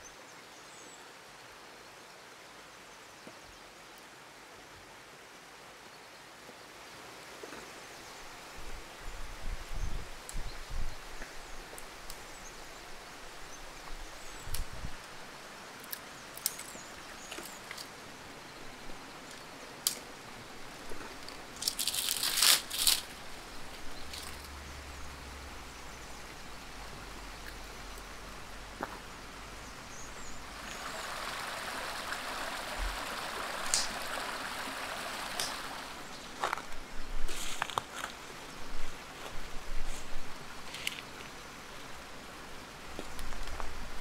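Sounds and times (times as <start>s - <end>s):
forest stream rushing: 0.0s - 44.0s
rustling hiss: 6.1s - 44.0s
dry branches snapping: 21.1s - 23.2s, 24.1s - 24.5s, 35.3s - 35.7s.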